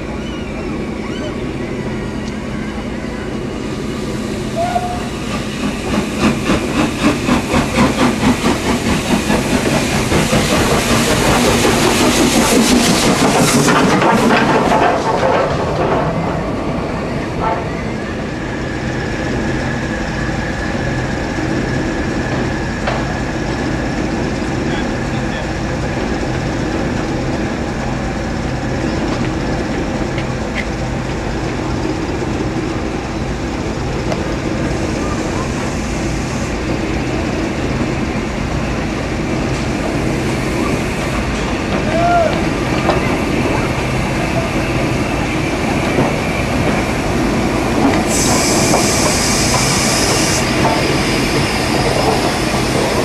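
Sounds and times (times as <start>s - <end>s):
steam locomotive exhaust beats: 0.0s - 53.0s
steam hissing: 3.4s - 14.1s, 38.7s - 53.0s
steam hissing at cylinders: 44.1s - 53.0s.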